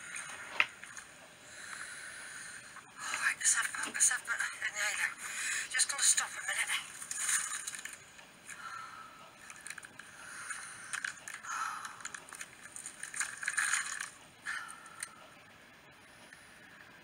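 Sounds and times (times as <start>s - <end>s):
rustling and scraping: 6.9s - 8.2s, 9.4s - 14.4s.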